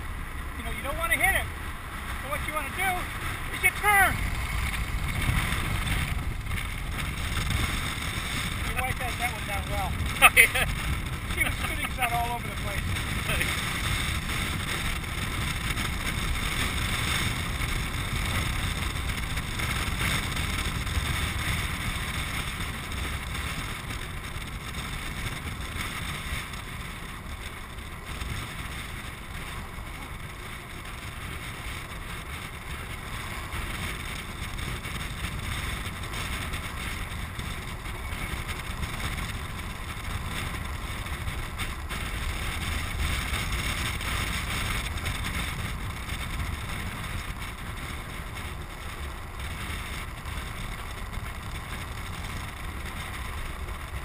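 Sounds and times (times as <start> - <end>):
low rumble of land sailer: 0.0 - 54.0
wind buffeting microphone: 0.0 - 54.0.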